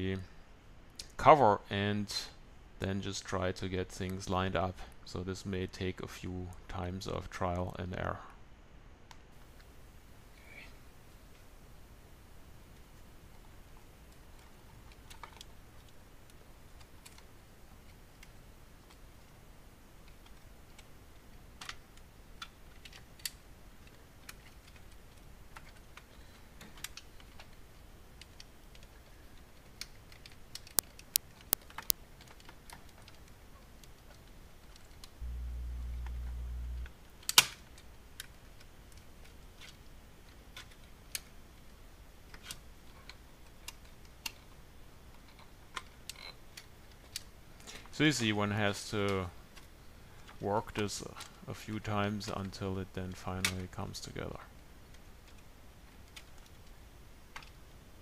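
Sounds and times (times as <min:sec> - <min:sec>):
small plastic clicks: 0:21.5 - 0:35.2
brief low hum: 0:35.2 - 0:37.0.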